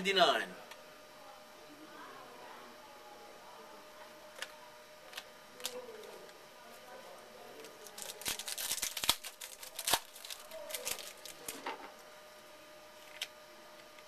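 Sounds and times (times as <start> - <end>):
card pack wrapper crinkling: 7.8 - 11.7.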